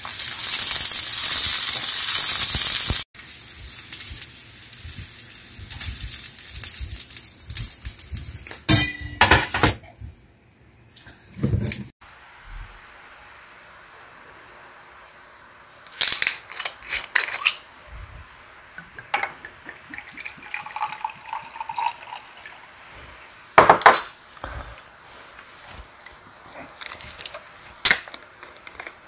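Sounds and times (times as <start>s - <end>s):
metal screw cap cracking open: 15.9s - 17.6s
liquid pouring into glass: 19.2s - 22.7s.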